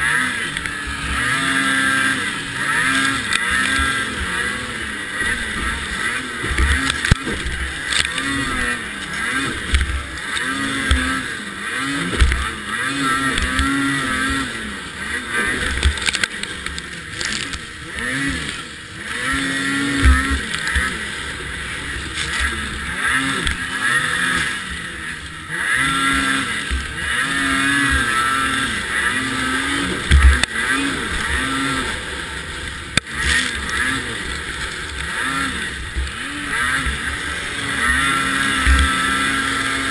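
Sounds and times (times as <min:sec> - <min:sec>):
snowmobile engine revving: 0:00.0 - 0:39.9
chassis thumping over bumps: 0:03.5 - 0:14.7.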